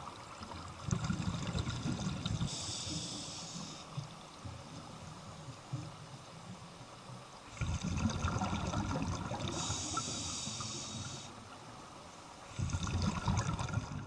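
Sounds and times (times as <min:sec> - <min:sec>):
exhaled bubbles gurgling underwater: 0:00.0 - 0:06.2, 0:07.2 - 0:11.8, 0:12.4 - 0:14.0
regulator inhale hiss: 0:02.3 - 0:04.1, 0:09.4 - 0:11.5.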